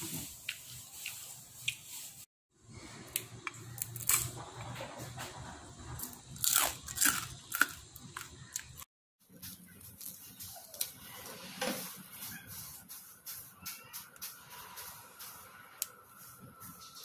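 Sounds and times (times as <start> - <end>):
crunchy chewing: 6.0 - 8.9.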